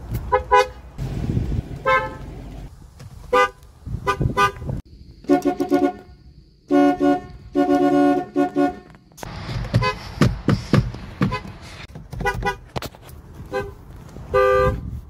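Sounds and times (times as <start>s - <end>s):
car horns honking: 0.3s - 0.8s, 1.8s - 2.4s, 3.3s - 10.4s, 11.2s - 12.8s, 13.4s - 14.9s.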